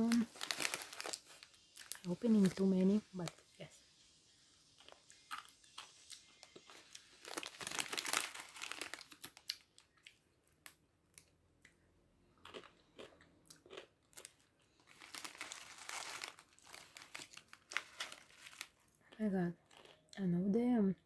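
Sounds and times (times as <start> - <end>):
plastic snack bag crinkling: 0.0 - 3.5, 5.8 - 11.3, 12.5 - 19.1, 19.7 - 20.0
crunchy snack chewing: 4.8 - 10.2, 12.4 - 20.1.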